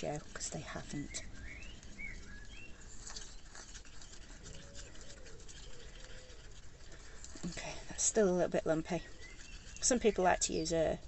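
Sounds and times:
stick scraping plastic pot: 0.0 - 10.7
bird chirps: 0.9 - 6.6, 9.0 - 10.8.

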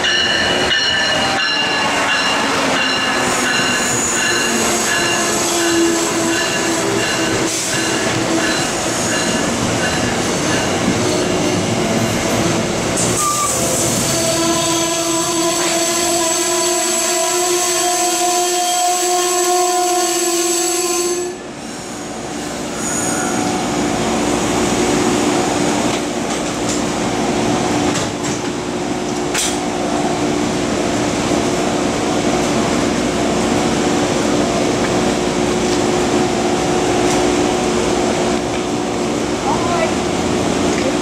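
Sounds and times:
train brakes squealing: 0.3 - 11.6, 13.0 - 23.7.

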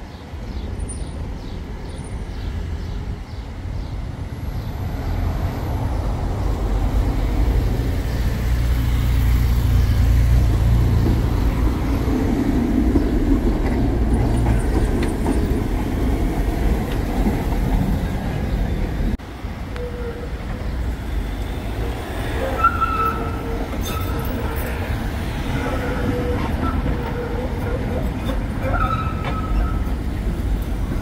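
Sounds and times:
tram rumbling on rails: 0.0 - 31.0.

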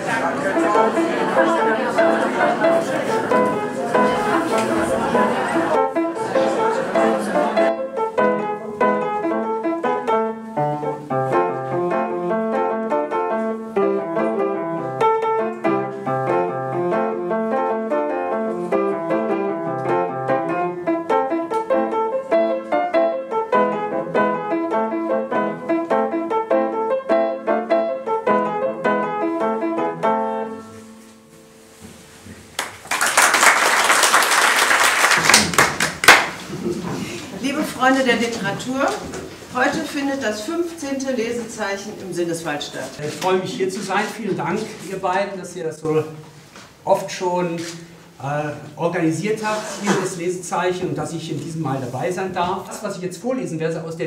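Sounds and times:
solo upright piano: 0.0 - 32.5
audience applause: 32.6 - 36.5.

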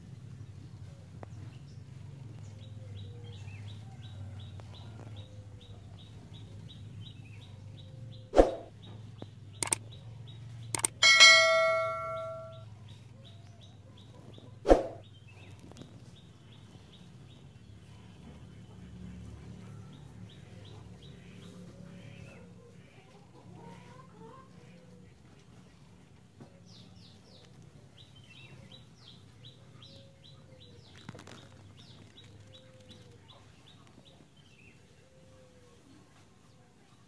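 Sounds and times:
sharp thump: 8.4 - 8.7
clicks: 9.6 - 9.8, 10.8 - 12.5
loud metallic ring: 10.8 - 12.6.

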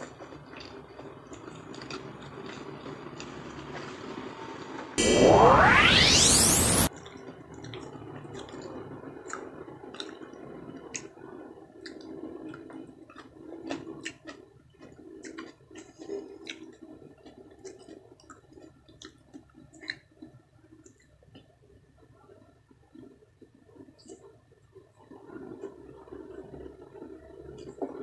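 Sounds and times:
person chewing: 1.4 - 2.6, 11.8 - 20.0.

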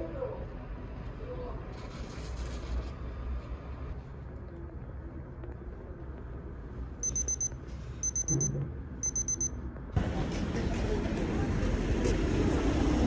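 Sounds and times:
street background noise: 0.0 - 13.0
kitchen timer beeping: 7.0 - 9.6.

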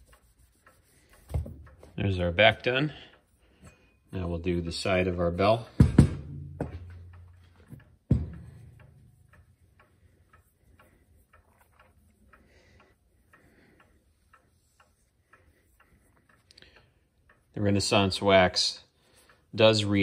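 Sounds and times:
light clicks and rubbing: 0.0 - 5.2.

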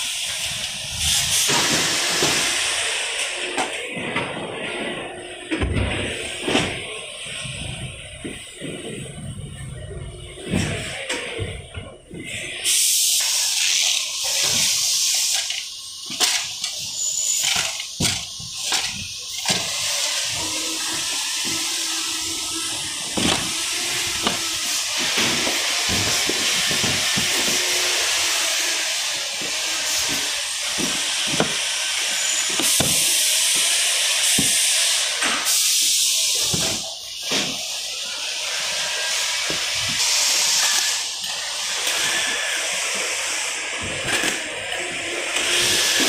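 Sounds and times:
steady hiss: 12.3 - 43.8.

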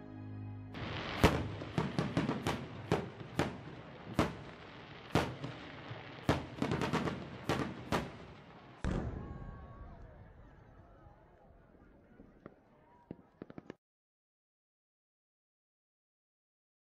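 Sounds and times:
fireworks bursting bangs: 0.8 - 10.5, 12.0 - 13.8.

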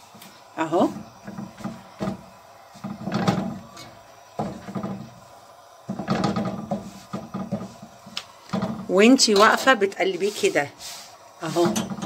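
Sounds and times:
hand rubbing dough on griddle: 5.9 - 12.0.

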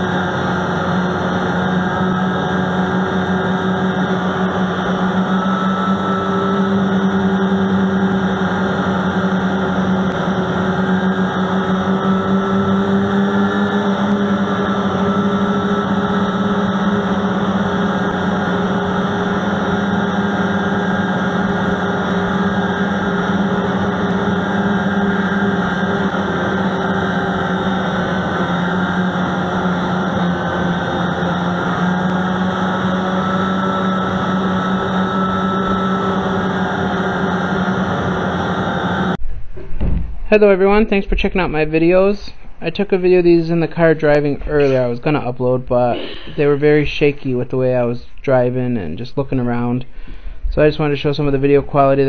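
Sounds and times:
snowmobile engine running: 0.0 - 39.2, 44.5 - 44.8.

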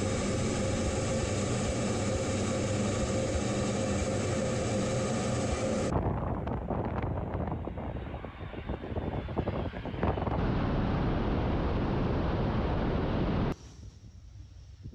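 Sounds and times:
jet aircraft flying low: 0.0 - 13.6
wind crackling on microphone: 5.6 - 14.9.

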